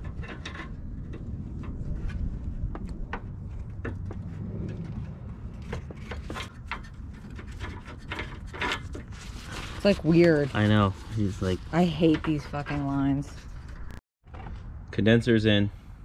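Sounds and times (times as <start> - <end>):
steady low rumble: 0.0 - 8.0.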